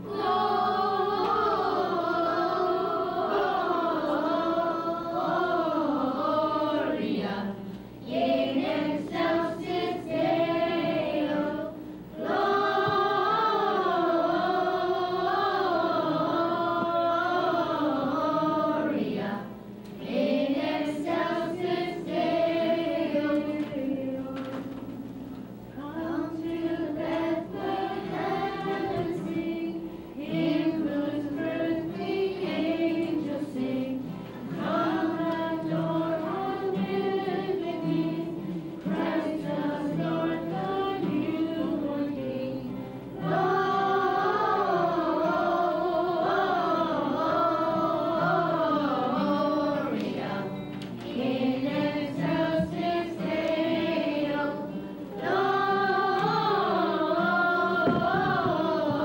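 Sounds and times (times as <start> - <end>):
children singing carol: 0.0 - 59.0.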